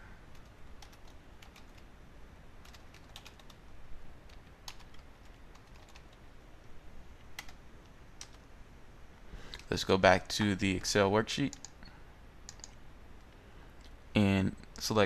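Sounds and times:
low steady hiss: 0.0 - 15.0
keyboard typing: 0.3 - 1.9, 2.6 - 3.6, 4.2 - 6.2, 7.4 - 7.6, 8.2 - 8.4, 11.5 - 12.8.

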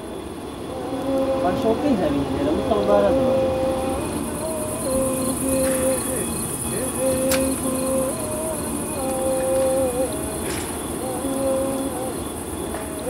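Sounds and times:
crickets chirring: 0.0 - 13.0
wavering mid-pitched hum: 0.0 - 13.0
faint clicks: 7.2 - 7.6, 10.4 - 10.8.

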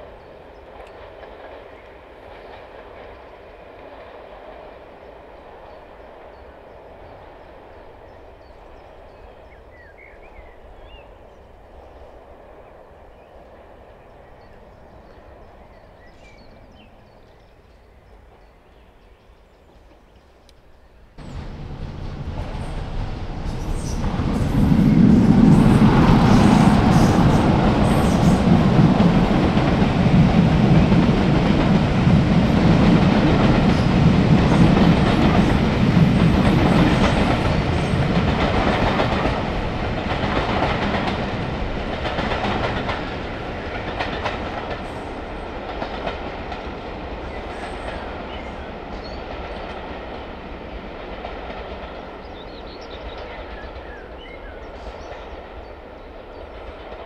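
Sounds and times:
diesel train engine: 21.2 - 48.9.

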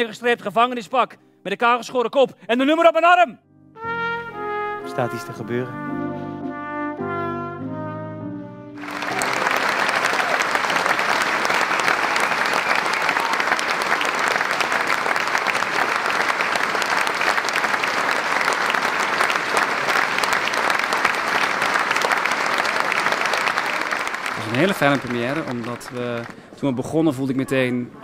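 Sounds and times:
music: 0.0 - 14.6
audience applause: 8.8 - 26.5.

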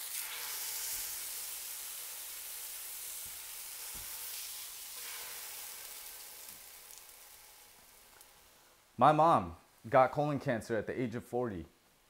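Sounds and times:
tortilla sizzling in frying pan: 0.0 - 8.8.

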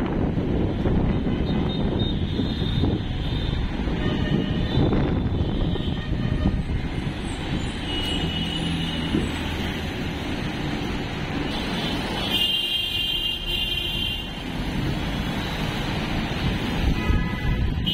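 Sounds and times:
bus engine low rumble: 0.0 - 8.4.

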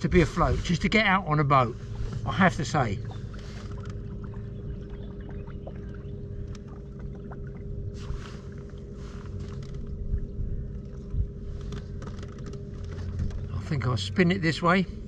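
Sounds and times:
electric trolling motor humming: 0.0 - 15.0
water swishes: 0.1 - 14.2
small clicks: 6.4 - 6.7, 11.6 - 13.5.

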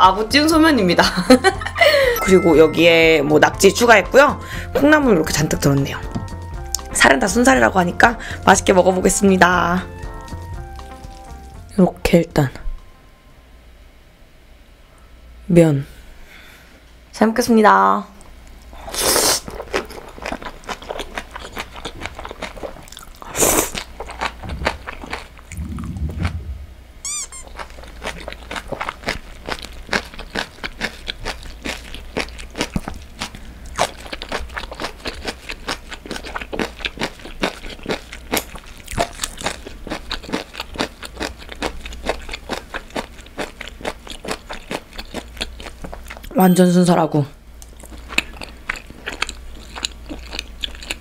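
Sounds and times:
wet chewing with crunchy clicks: 19.4 - 25.6, 27.3 - 46.4, 47.6 - 51.0
faint low hum: 23.9 - 36.0.

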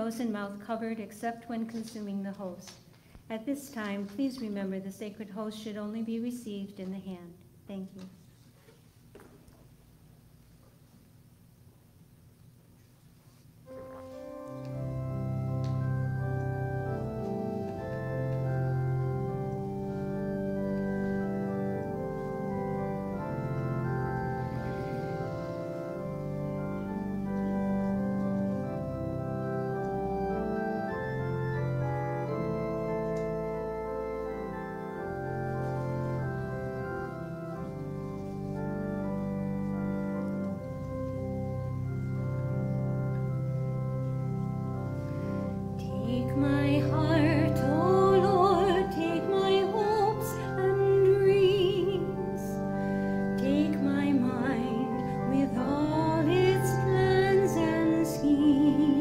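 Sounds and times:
organ playing sustained chords: 13.3 - 59.0.

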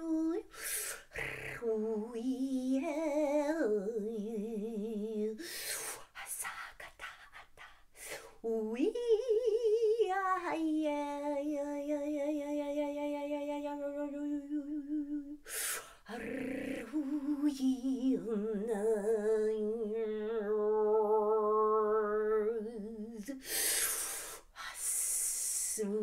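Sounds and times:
woman singing long notes: 0.0 - 5.4, 8.4 - 23.7.

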